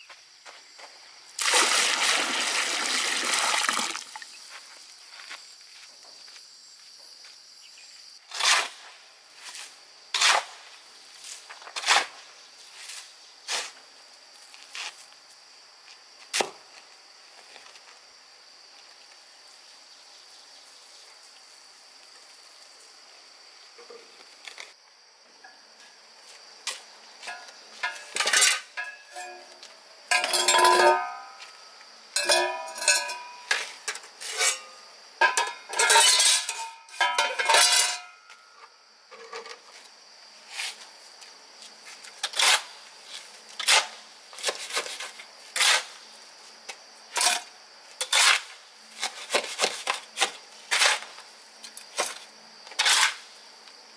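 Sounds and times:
dishes and pots clinking: 27.3s - 29.5s, 30.1s - 31.4s, 32.2s - 33.7s, 34.3s - 38.4s.

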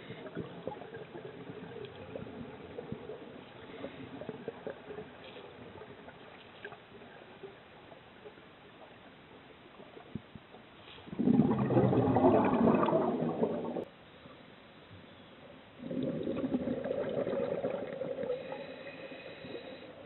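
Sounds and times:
rush of exhaled bubbles: 11.1s - 13.9s, 15.8s - 20.0s
regulator breathing hiss: 18.4s - 20.0s.

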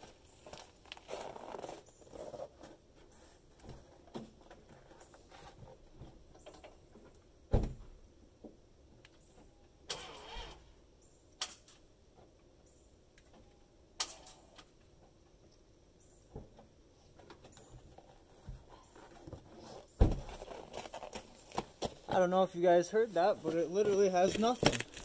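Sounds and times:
heavy thump: 20.0s - 20.4s.

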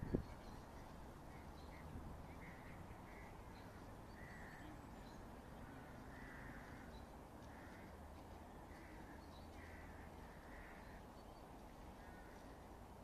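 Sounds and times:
low outdoor rumble: 0.0s - 13.0s
crow cawing: 4.2s - 4.8s, 5.6s - 8.0s, 8.7s - 11.0s, 12.0s - 12.6s.

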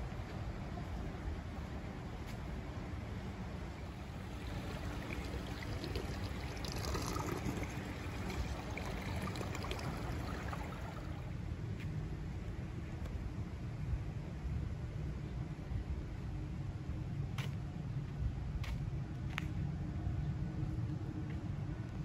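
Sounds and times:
water trickling: 3.7s - 11.4s.

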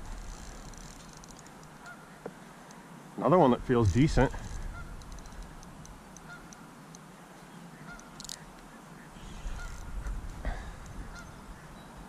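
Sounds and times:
geese honking: 3.8s - 5.1s, 6.2s - 6.6s, 7.8s - 8.2s, 9.0s - 10.1s, 11.0s - 11.4s.

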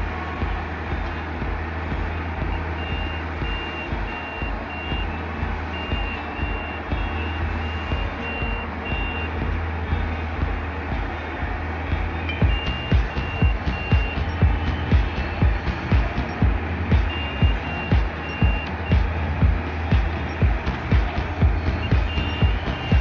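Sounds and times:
diesel engine droning: 0.0s - 23.0s
electronic warning beeps: 5.8s - 9.4s, 12.2s - 16.4s, 17.0s - 19.0s.

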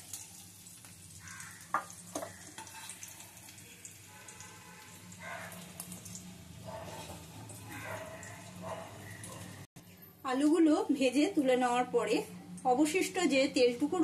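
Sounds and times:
potatoes sizzling in hot oil: 0.0s - 9.6s
metal spoon knocking on pan: 1.7s - 2.8s
spoon scraping pan: 2.1s - 3.4s, 6.6s - 8.0s.

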